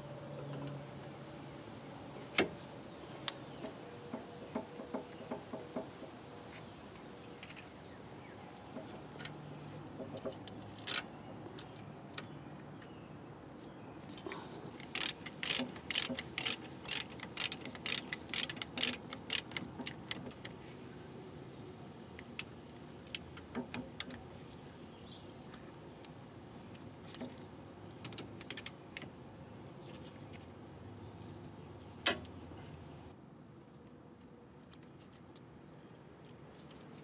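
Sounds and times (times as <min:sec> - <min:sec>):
socket ratchet clicking: 0:14.8 - 0:20.5.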